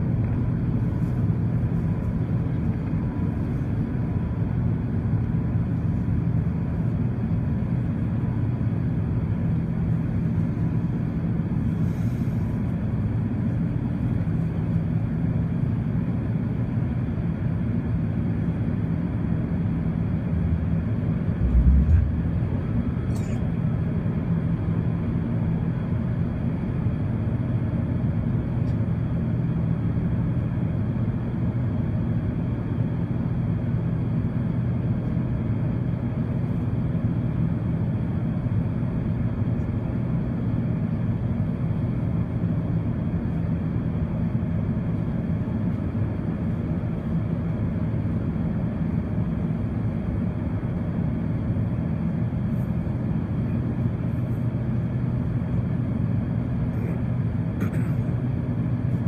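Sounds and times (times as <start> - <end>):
jet engines rumbling in cabin: 0.0 - 59.0
low tonal hum: 18.1 - 47.2.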